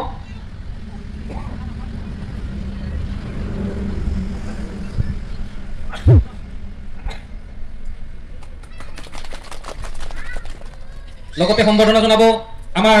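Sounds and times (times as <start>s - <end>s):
loud microphone thump: 6.0s - 6.3s.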